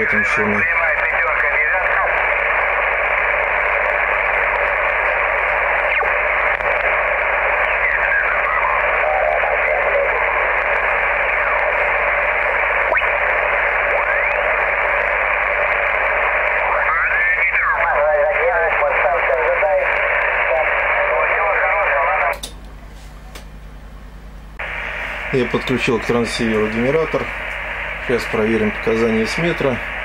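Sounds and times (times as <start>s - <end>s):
faint radio voices sliding in pitch: 0.0s - 22.3s
radio static hiss: 0.0s - 22.4s, 24.5s - 30.0s.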